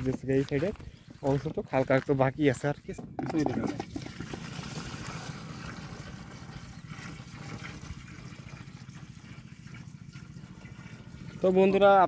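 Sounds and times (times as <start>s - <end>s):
water pouring into plastic tank: 3.0s - 12.0s.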